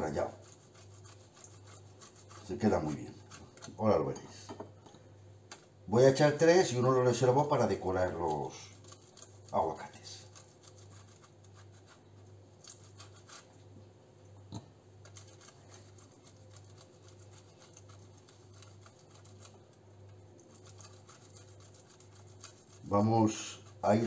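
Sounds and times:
egg scraping on metal grater: 0:00.0 - 0:03.8, 0:08.0 - 0:12.0, 0:15.0 - 0:24.0
low steady hum: 0:00.0 - 0:24.0.

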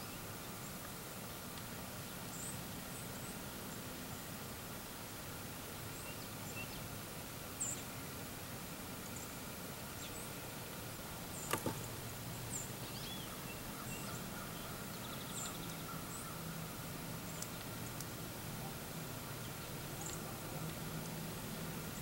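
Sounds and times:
faint steady hum: 0:00.0 - 0:22.0
small birds chirping: 0:09.1 - 0:22.0
sharp click: 0:11.4 - 0:11.9.

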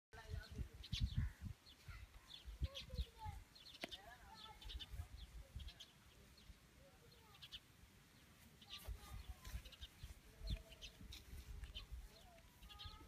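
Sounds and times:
wind rumble on microphone: 0:00.2 - 0:03.4
small birds chirping: 0:00.2 - 0:13.0.

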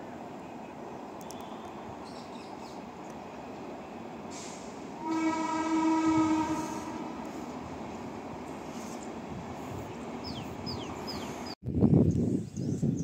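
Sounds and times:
train horn blast: 0:05.0 - 0:07.4.

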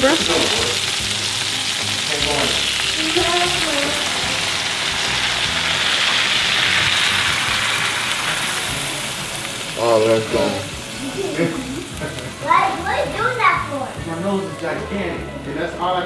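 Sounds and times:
broth pouring into pan: 0:00.0 - 0:15.2
vegetables sizzling in a skillet: 0:00.0 - 0:16.0.

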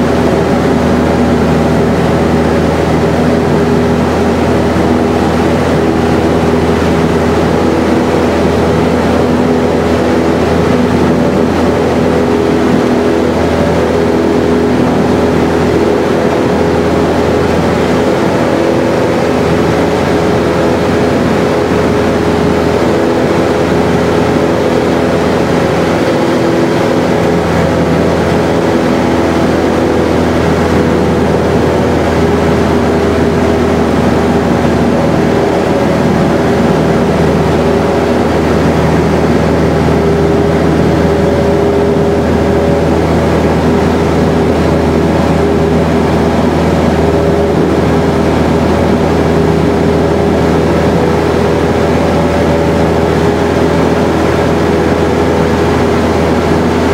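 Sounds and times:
propeller airplane engine drone: 0:00.0 - 0:56.9.

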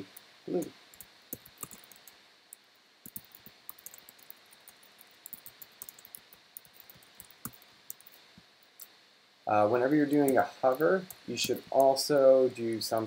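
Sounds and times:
typing on computer keyboard: 0:01.0 - 0:02.1, 0:03.1 - 0:08.2.

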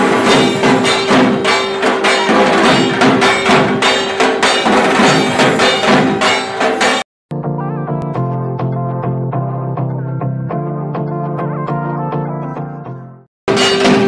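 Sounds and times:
music with percussive beat: 0:00.0 - 0:07.1, 0:13.5 - 0:14.0.

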